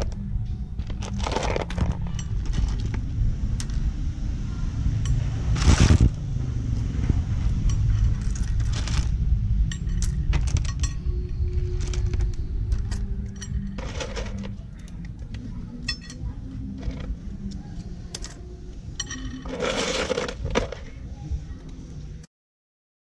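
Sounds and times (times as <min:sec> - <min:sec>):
steady low hum: 0:00.0 - 0:22.3
rattle of shells: 0:00.8 - 0:03.0, 0:07.7 - 0:14.6, 0:19.0 - 0:20.8
shells clicking and clinking: 0:07.6 - 0:16.2.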